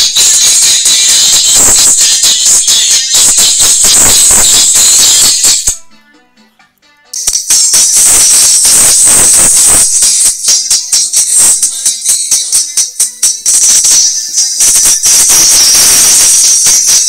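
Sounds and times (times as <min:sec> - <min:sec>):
song through car tweeter: 0:00.0 - 0:17.0.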